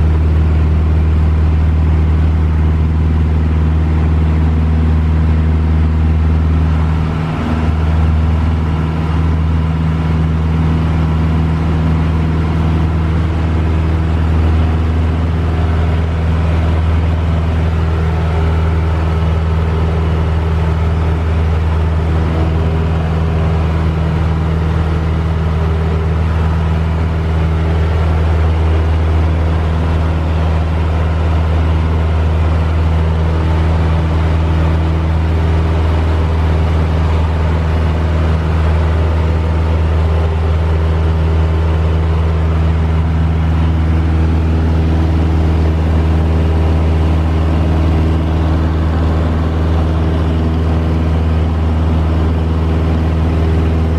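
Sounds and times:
light plane engine droning: 0.0s - 53.9s.

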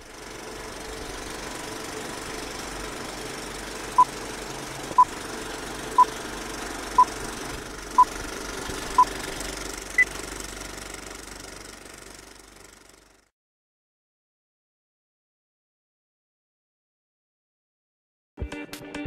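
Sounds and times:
film projector clatter: 0.0s - 13.3s.

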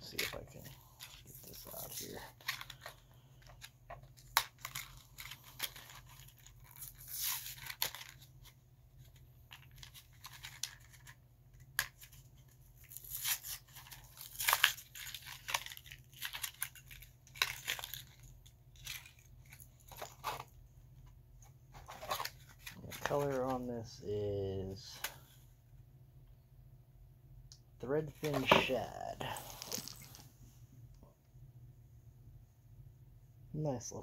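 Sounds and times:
packaging crinkling and tearing: 0.1s - 20.6s, 28.2s - 30.2s.

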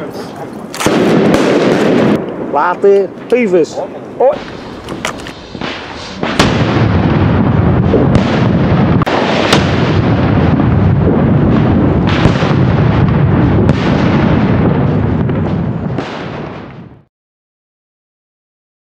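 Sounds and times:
firecrackers cracking: 0.0s - 17.1s
steady low noise: 0.9s - 16.0s.

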